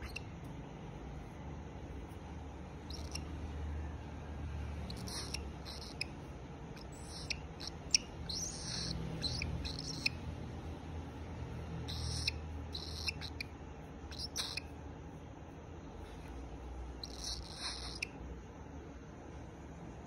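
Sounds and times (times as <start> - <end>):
cockatiel chirping: 0.0 - 0.5, 2.8 - 3.4, 4.8 - 10.3, 11.8 - 14.8, 17.0 - 18.2.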